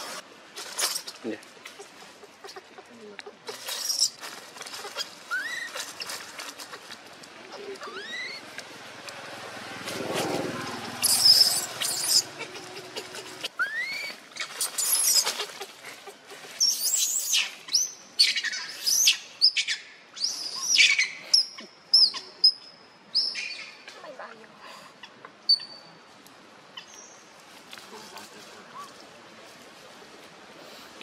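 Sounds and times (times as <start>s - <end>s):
infant monkey squealing cries: 4.8s - 6.2s, 7.5s - 8.4s, 11.0s - 15.6s.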